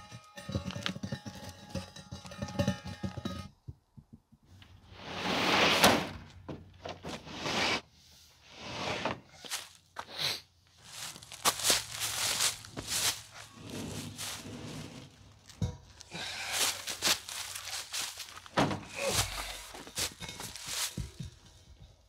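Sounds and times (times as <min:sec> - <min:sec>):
dull thunks: 0:18.5 - 0:19.7.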